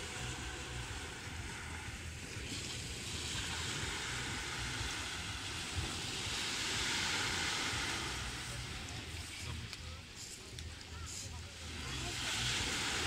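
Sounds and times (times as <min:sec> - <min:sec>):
wind rumbling on microphone: 0:00.0 - 0:09.7
waves washing on pebble beach: 0:00.1 - 0:09.4, 0:11.6 - 0:13.0.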